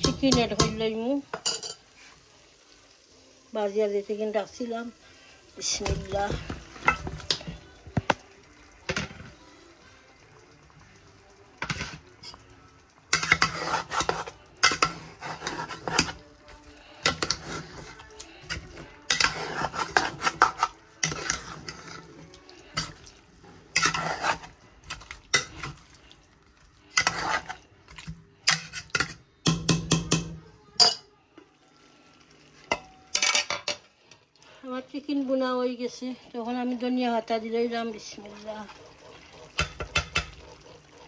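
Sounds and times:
chicken frying: 0:00.0 - 0:30.3, 0:31.4 - 0:41.0
spoon scraping a cooking pot: 0:13.1 - 0:26.0, 0:26.8 - 0:30.2, 0:38.3 - 0:41.0.

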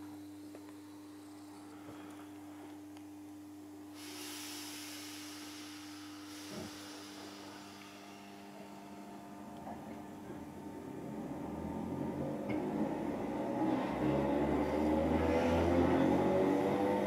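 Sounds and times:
steady electrical hum: 0:00.0 - 0:17.0
air hiss: 0:03.9 - 0:09.1
train motor tones: 0:10.5 - 0:17.0.

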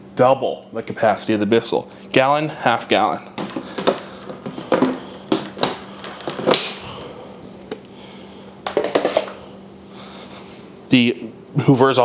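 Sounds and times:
faint steady hum: 0:00.0 - 0:12.0
hard plastic parts knocking: 0:03.4 - 0:07.0, 0:08.6 - 0:09.4.

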